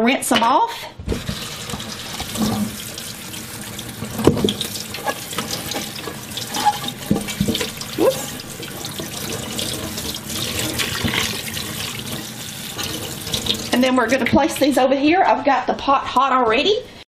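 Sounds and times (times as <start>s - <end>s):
hands stirring vegetables: 1.0s - 14.4s
tap water running: 1.0s - 14.8s.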